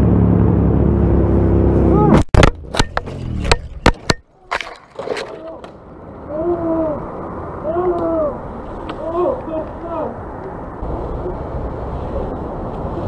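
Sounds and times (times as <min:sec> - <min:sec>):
wind rush: 0:06.0 - 0:13.0.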